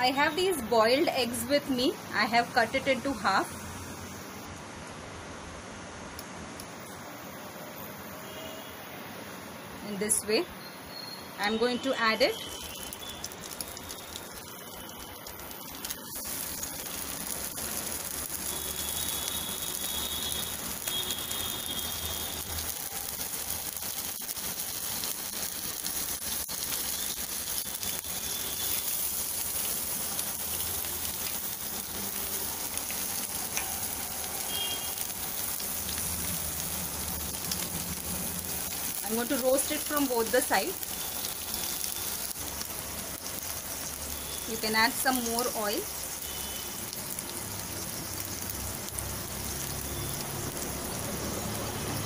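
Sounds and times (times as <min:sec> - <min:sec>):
eggs sizzling in hot oil: 0:00.0 - 0:04.4, 0:10.0 - 0:52.0
oil crackles: 0:12.3 - 0:52.0.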